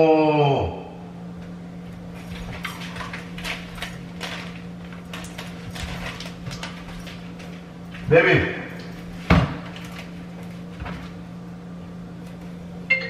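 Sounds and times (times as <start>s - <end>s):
low hum: 0.0s - 13.0s
clicks and crinkles of handling: 2.1s - 8.1s, 9.6s - 11.2s.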